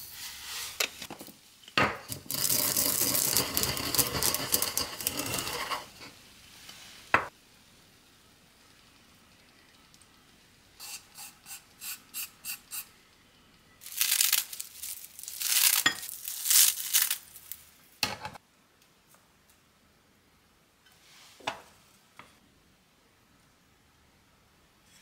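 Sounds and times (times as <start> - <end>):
crackly rustling of seaweed tearing: 13.8 - 17.7
ceramic bowl set on stone: 15.2 - 16.3.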